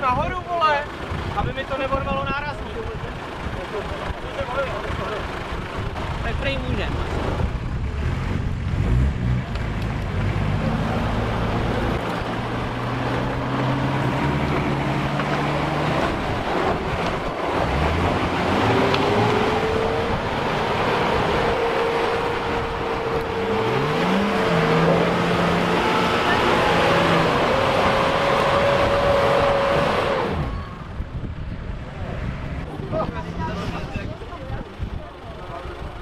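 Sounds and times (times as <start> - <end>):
off-road engines under load: 0.0 - 36.0.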